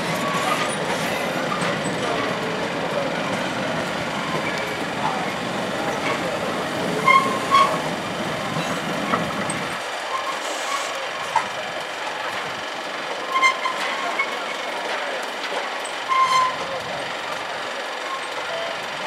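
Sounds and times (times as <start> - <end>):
high wheel squeals: 0.0 - 11.6, 13.2 - 14.8, 15.7 - 18.8
train wheels clattering: 0.0 - 18.8.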